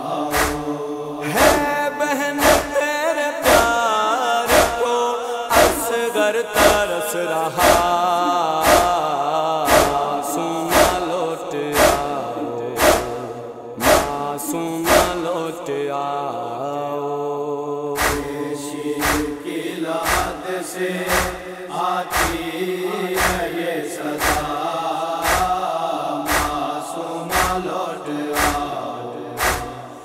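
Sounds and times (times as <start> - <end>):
chanted voices drone: 0.0 - 30.0
sharp rhythmic strikes: 0.3 - 0.7, 1.3 - 3.8, 4.5 - 4.9, 5.5 - 15.5, 18.0 - 18.4, 19.0 - 20.4, 21.1 - 22.5, 23.2 - 23.6, 24.2 - 24.6, 25.2 - 25.6, 26.3 - 26.7, 27.3 - 27.7, 28.4 - 28.7, 29.4 - 30.0.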